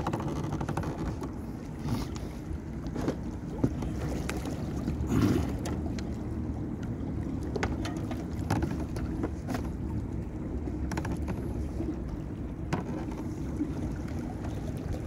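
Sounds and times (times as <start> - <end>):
light clicks and knocks: 0.0 - 1.4, 10.8 - 11.5
boat engine rumble: 0.0 - 15.0.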